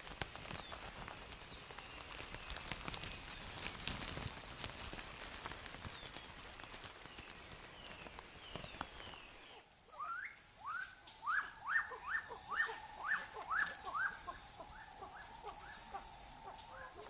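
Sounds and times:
high insect drone: 0.0 - 17.0
animal calling: 9.5 - 17.0.

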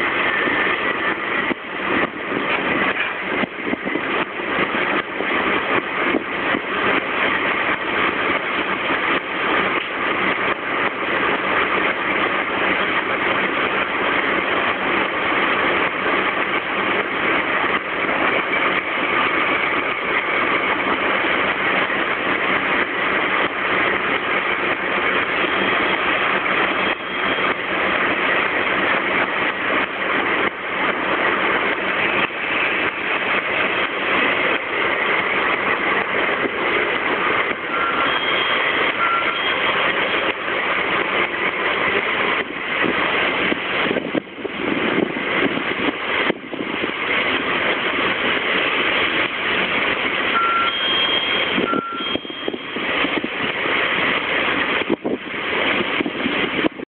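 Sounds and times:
diesel locomotive running: 0.0 - 56.8
short beeps: 37.7 - 39.8, 50.4 - 52.8.

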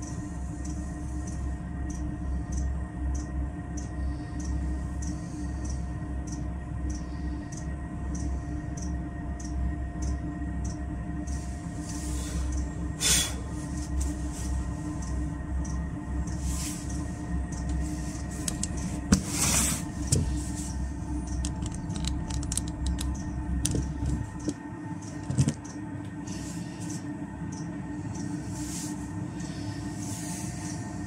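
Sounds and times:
heater low rumble and hum: 0.0 - 31.0
rustling hisses: 17.8 - 20.8
handling knocks and clicks: 21.3 - 25.8.

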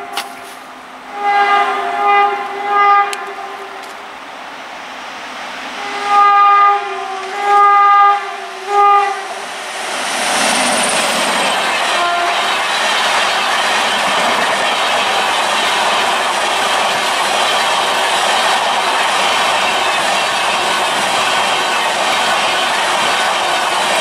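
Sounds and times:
locomotive horn short blasts: 0.0 - 3.7, 5.8 - 9.3
train passing at speed: 0.0 - 24.0.

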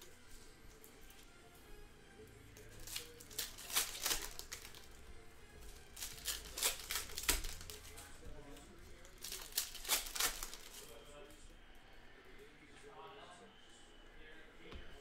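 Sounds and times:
card wrappers crinkling and tearing: 2.5 - 5.0, 5.6 - 11.0.

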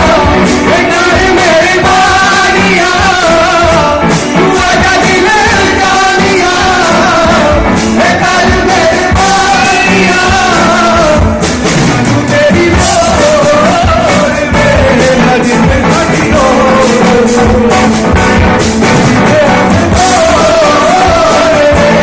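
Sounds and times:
live band playing pop: 0.0 - 22.0
person singing: 0.0 - 22.0.

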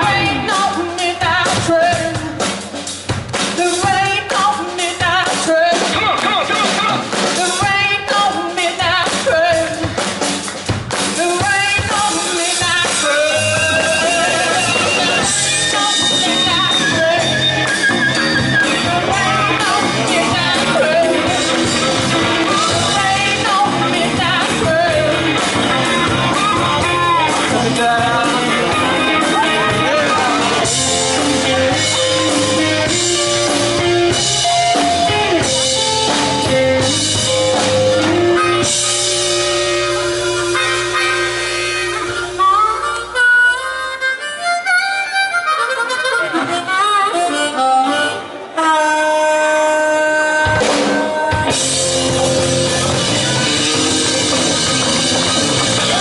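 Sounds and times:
bass guitar: 0.0 - 56.0
drums: 0.0 - 56.0
electric guitar: 0.0 - 56.0
amplified blues harmonica: 12.0 - 56.0.

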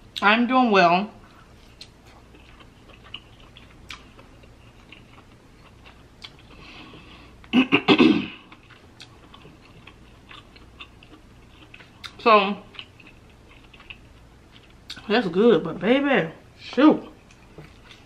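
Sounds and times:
soft chewing clicks: 1.2 - 7.5, 8.4 - 15.1, 17.0 - 18.0.

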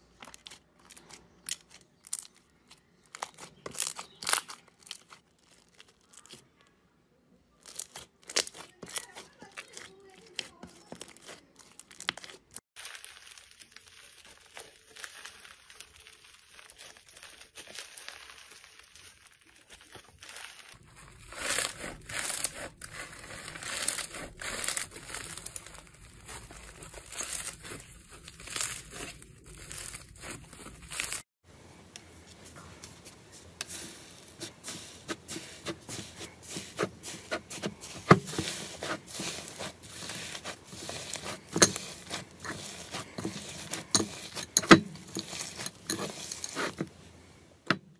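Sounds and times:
slime crackling and popping: 0.2 - 6.5, 7.6 - 31.2, 33.6 - 46.8.

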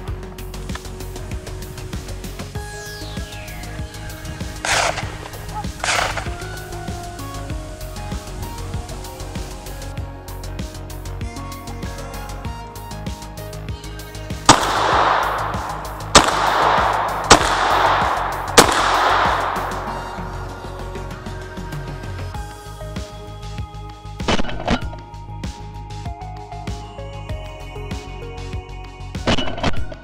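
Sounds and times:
echo rolling through forest: 0.0 - 11.3, 13.8 - 23.8
background music with beat: 0.0 - 30.0
gunshots: 3.2 - 6.7, 14.5 - 20.6.

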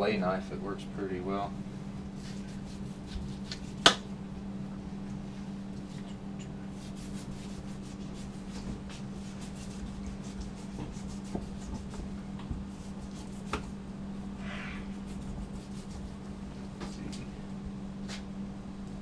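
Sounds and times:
low steady hum: 0.0 - 19.0
rubbing on wooden cutting board: 2.1 - 3.9, 6.7 - 13.7, 14.4 - 16.3.

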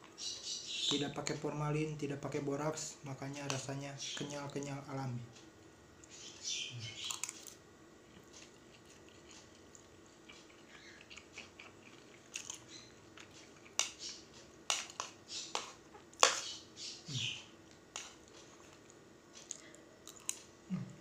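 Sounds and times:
person chewing noodles: 7.0 - 16.4, 17.1 - 20.5.

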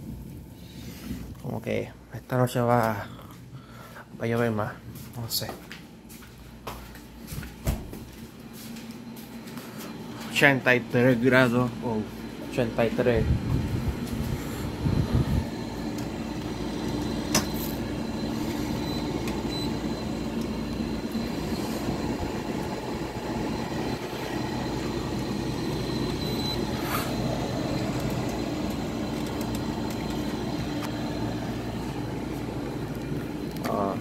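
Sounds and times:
air conditioner humming: 0.0 - 34.0
faint high whine: 8.2 - 34.0.

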